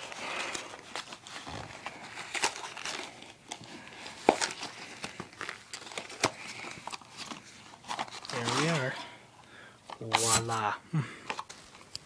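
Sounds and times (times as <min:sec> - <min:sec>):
packaging crinkling and tearing: 0:00.0 - 0:09.1.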